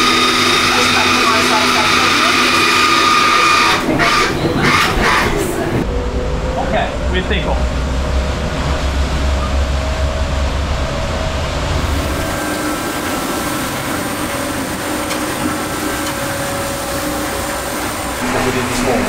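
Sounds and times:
deep low rumble: 5.8s - 14.8s
rush of wind and water: 7.6s - 19.0s.

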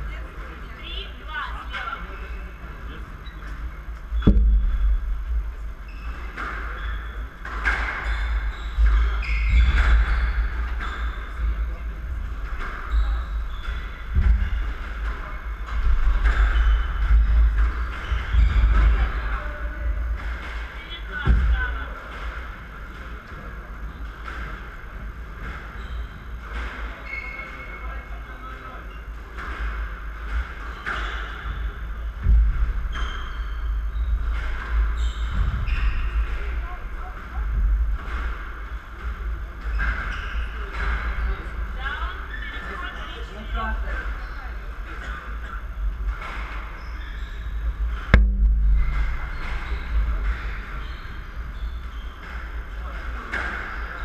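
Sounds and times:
sneakers squeaking on wooden floor: 0.2s - 54.0s
shoes squeaking on wooden floor: 2.0s - 19.8s, 25.7s - 29.4s, 32.8s - 37.4s
squash ball strikes: 4.1s - 10.8s, 47.7s - 50.5s
squash ball striking walls: 4.1s - 22.5s, 47.6s - 52.6s.

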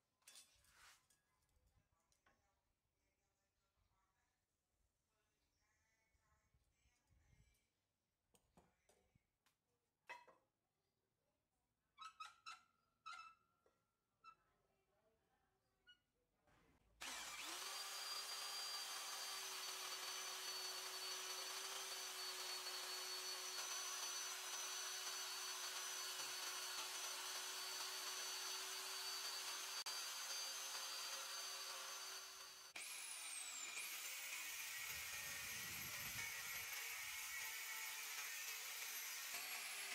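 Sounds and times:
drill press motor whine: 17.0s - 36.8s
angle grinder spinning up: 17.0s - 39.9s
drill bit drilling into steel: 17.0s - 39.9s.

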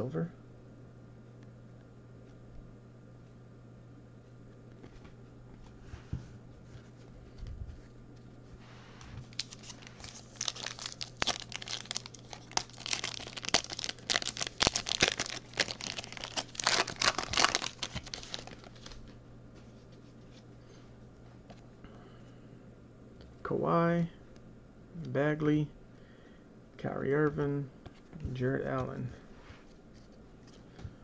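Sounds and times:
foil wrapper tearing and crinkling: 9.2s - 19.0s.

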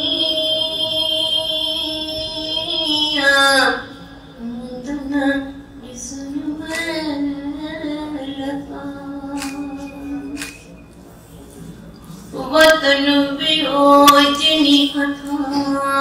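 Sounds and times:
woman singing long sliding notes: 0.0s - 3.8s.

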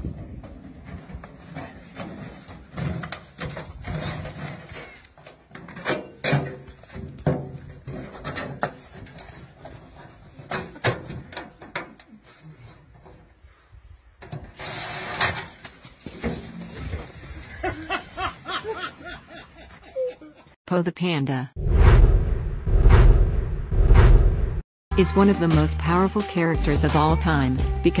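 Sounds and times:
metal wheelbarrow clanking: 0.8s - 12.0s.

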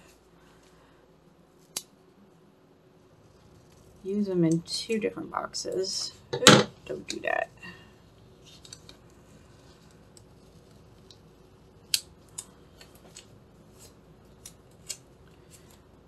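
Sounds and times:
paper stickers clicking and crinkling: 8.4s - 15.9s.

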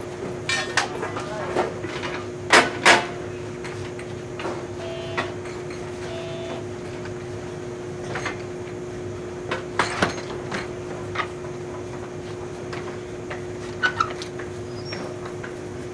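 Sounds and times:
standing trains humming: 3.1s - 9.8s
short tones: 4.8s - 5.4s, 6.0s - 6.7s.

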